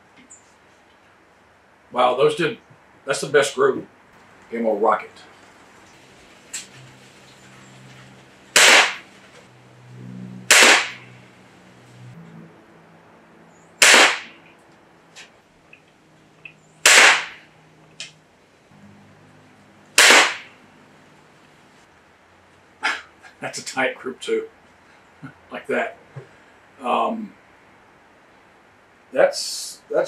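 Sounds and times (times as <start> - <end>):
air rifle cracks: 8.6 - 9.0, 10.5 - 11.0, 13.8 - 14.3, 16.8 - 17.4, 20.0 - 20.5.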